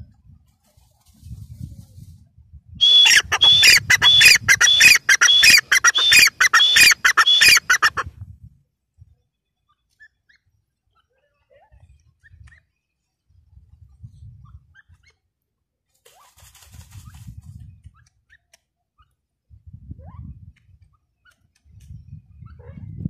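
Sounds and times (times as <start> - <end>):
bird shrill repeated calls: 2.8 - 8.0.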